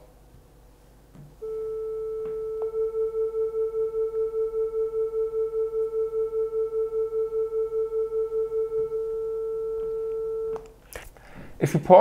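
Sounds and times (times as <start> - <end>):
beating sine tones: 1.4 - 10.7.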